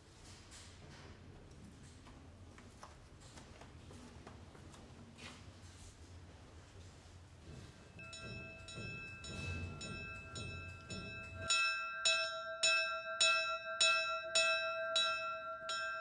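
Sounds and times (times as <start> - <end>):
small bell ringing: 8.0 - 16.0.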